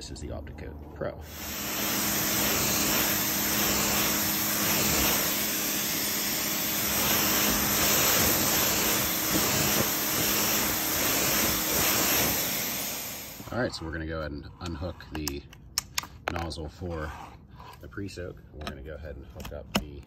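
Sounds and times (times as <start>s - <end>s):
pressure washer motor hum: 1.2s - 13.6s
pressure washer spraying water: 1.3s - 13.6s.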